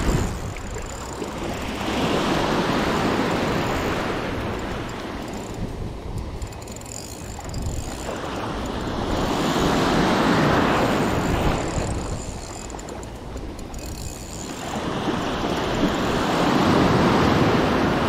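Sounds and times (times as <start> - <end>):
waves breaking on sandy beach: 0.0 - 18.0
wind buffeting microphone: 0.0 - 18.0.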